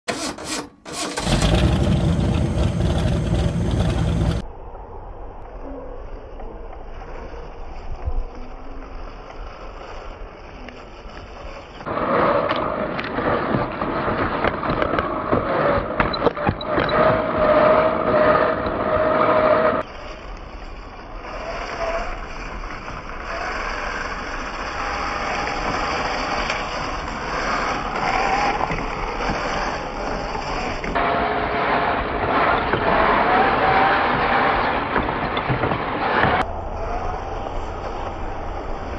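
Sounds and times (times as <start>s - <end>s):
toy car electric motor whining: 0.1s - 1.5s, 19.8s - 31.0s.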